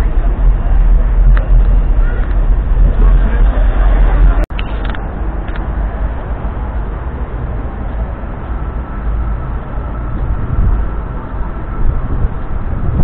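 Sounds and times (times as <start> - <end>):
city background rumble: 0.0 - 13.0
faint steady whine: 0.0 - 13.0.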